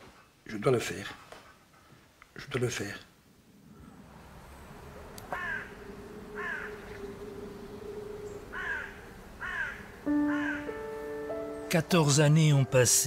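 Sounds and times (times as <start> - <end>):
faint steady low tone: 4.9 - 11.6
crow cawing: 5.2 - 11.0.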